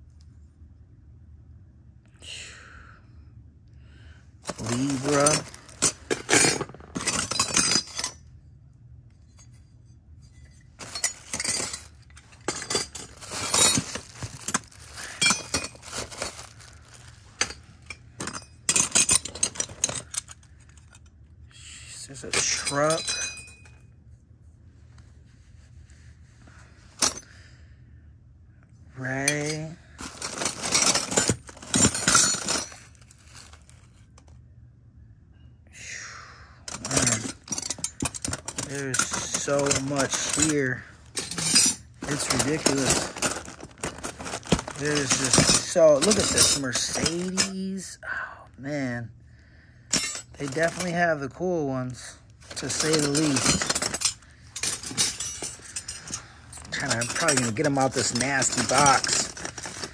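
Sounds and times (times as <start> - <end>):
metal buckles clinking: 4.4 - 8.2, 9.2 - 21.1, 22.3 - 23.8, 29.2 - 34.3, 36.7 - 47.8, 49.9 - 51.1, 51.8 - 59.9
metal belt buckles clinking: 52.5 - 59.9.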